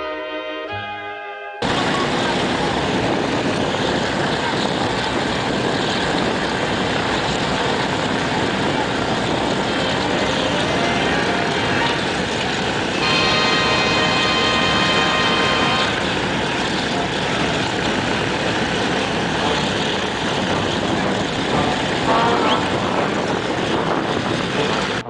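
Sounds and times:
propeller aircraft engines droning: 1.6s - 25.0s.

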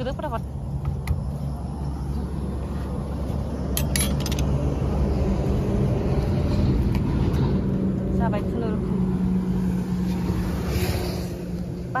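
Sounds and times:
vehicle engine and road rumble: 0.0s - 12.0s.

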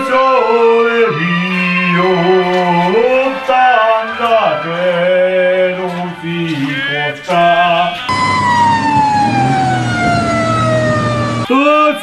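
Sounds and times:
siren falling wail: 8.1s - 11.5s.

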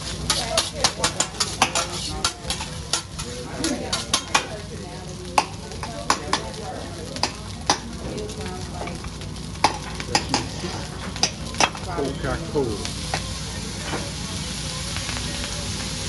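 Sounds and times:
food sizzling on a griddle: 0.0s - 16.0s
metal spatulas clacking on steel: 0.3s - 4.5s.

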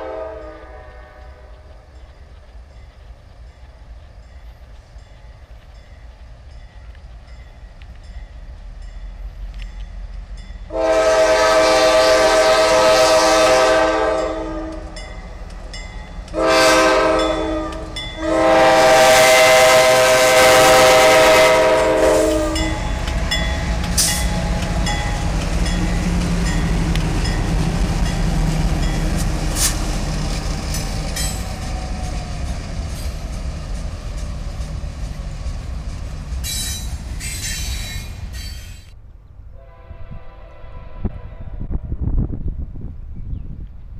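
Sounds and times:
locomotive air horn: 0.0s - 1.6s, 10.7s - 15.0s, 16.3s - 22.9s, 39.5s - 41.8s
train wheels clicking on rails: 1.1s - 10.7s, 14.2s - 39.0s.

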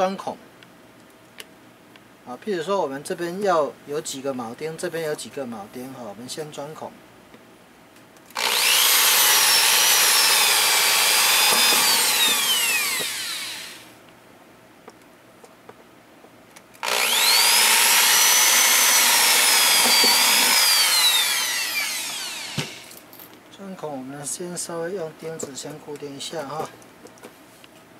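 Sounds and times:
electric drill whining: 8.3s - 14.0s, 16.8s - 23.0s.

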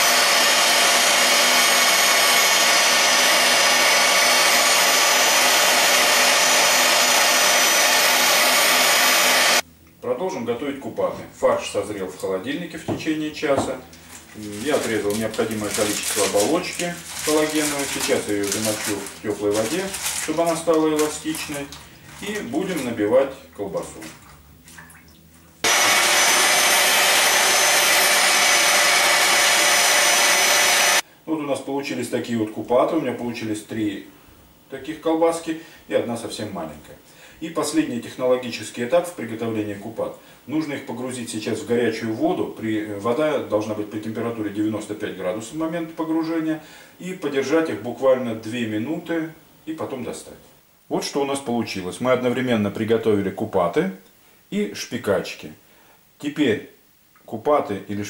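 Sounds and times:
meat grinder motor whirring: 0.0s - 9.6s, 14.4s - 21.2s, 25.6s - 31.0s.

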